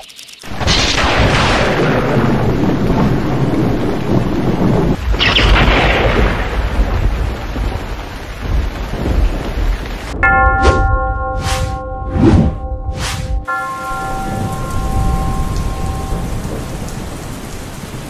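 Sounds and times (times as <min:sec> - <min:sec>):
rain: 0:00.0 - 0:10.6, 0:13.5 - 0:18.0
thunder cracks: 0:00.5 - 0:11.8
thunder rumbling: 0:00.5 - 0:18.0.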